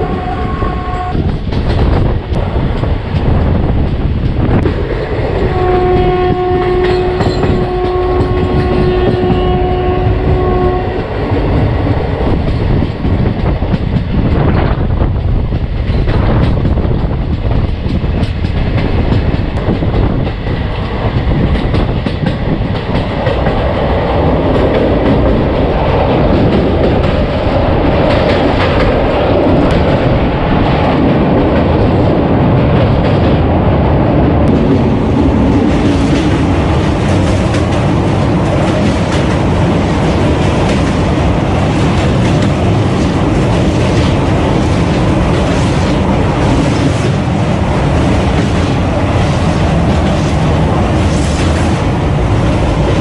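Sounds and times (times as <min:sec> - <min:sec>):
locomotive horn blast: 0:00.0 - 0:01.2, 0:05.4 - 0:11.0
train wheels rumbling on rails: 0:00.0 - 0:53.0.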